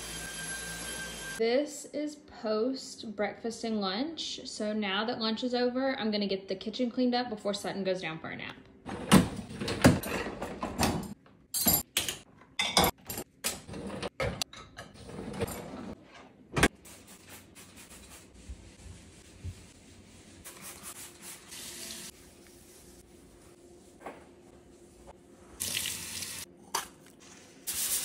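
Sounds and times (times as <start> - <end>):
dishes clattering: 11.6 - 15.8
kitchen tap running: 25.6 - 26.5.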